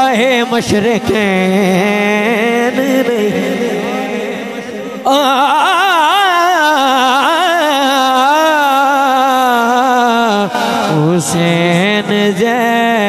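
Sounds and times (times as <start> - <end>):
man singing a long note: 0.0 - 13.0.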